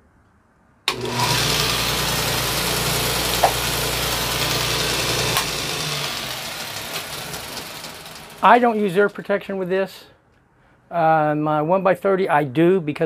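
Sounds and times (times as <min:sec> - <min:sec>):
belt grinder running: 0:00.9 - 0:09.3.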